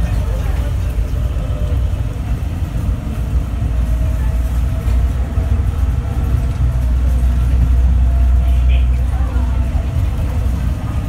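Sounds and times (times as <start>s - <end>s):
light-rail car rumbling on guideway: 0.0s - 11.0s.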